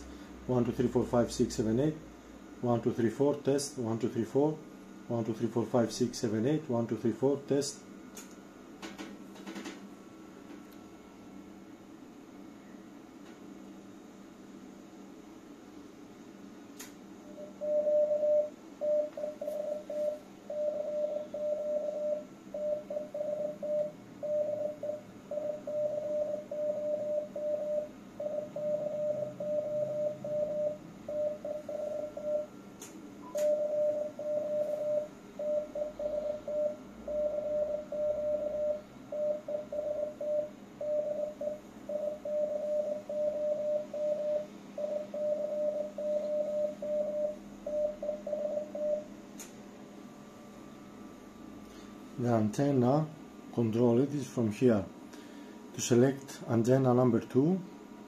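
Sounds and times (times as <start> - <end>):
morse code tone: 17.3 - 32.5, 33.2 - 49.1.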